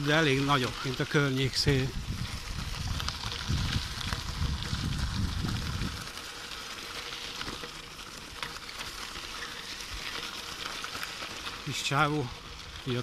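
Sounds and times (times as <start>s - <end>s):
bicycle tyres crunching on gravel: 0.0s - 13.0s
wind buffeting microphone: 1.5s - 6.2s.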